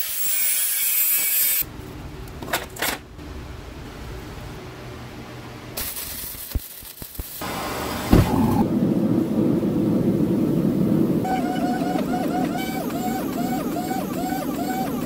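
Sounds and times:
arc welding crackling: 5.8s - 8.7s
loud knock: 8.1s - 8.6s.

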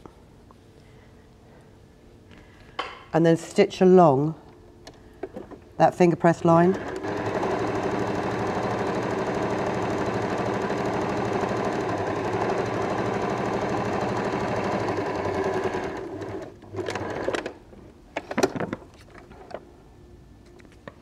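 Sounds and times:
sewing machine stitching: 6.5s - 17.5s.

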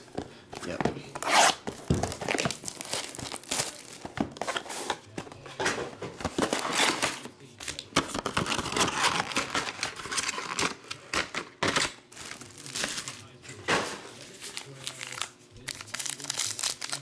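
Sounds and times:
foil packs crinkling: 0.6s - 4.6s, 6.3s - 11.2s, 12.1s - 13.5s, 14.1s - 17.0s.

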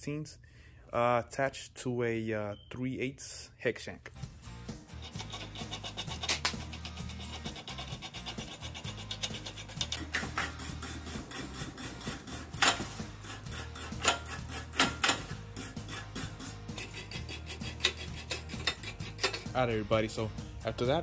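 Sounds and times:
background music: 4.1s - 21.0s
wire brush scraping metal: 4.8s - 19.8s.

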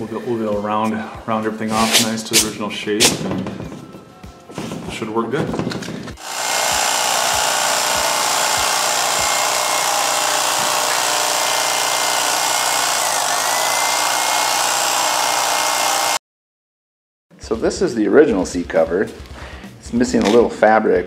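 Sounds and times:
electric knife buzzing: 6.2s - 16.2s.

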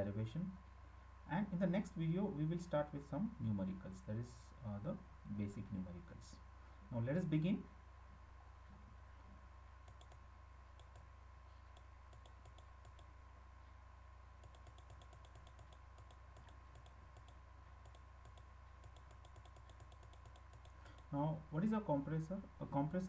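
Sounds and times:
steady low hum: 0.0s - 23.0s
quick computer clicks: 14.4s - 21.1s.

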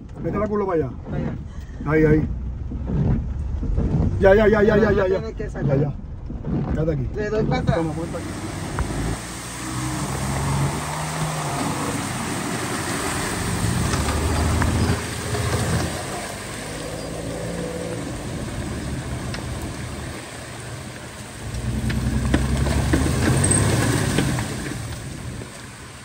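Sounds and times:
engine revving hard: 2.8s - 19.0s
rain hissing: 3.5s - 26.0s.

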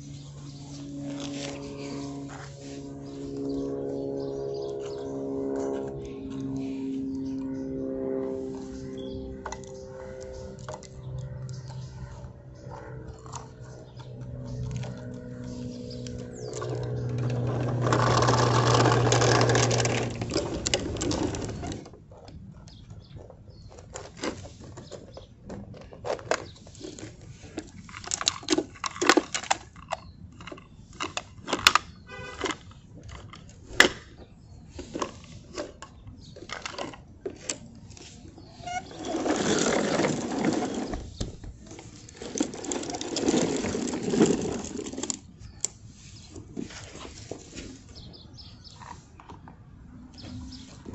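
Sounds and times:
steady hum: 0.0s - 21.9s
plastic toy clicks and knocks: 24.9s - 34.1s.

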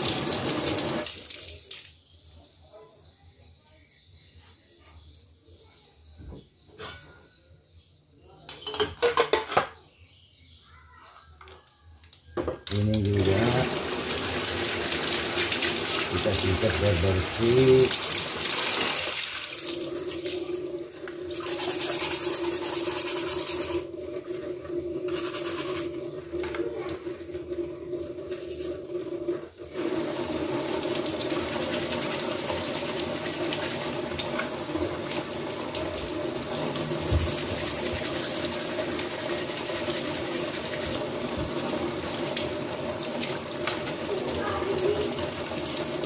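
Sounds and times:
tap water splashing into basin: 12.4s - 21.6s, 29.8s - 46.0s.

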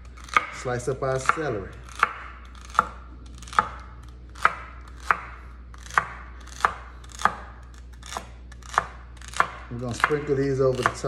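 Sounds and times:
knife chopping on wooden board: 0.1s - 11.0s.

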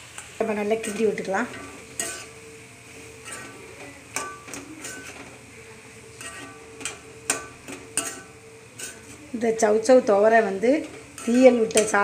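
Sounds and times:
ladle scraping and clinking pan: 0.8s - 2.5s, 3.1s - 5.3s, 6.0s - 9.2s, 10.8s - 12.0s.

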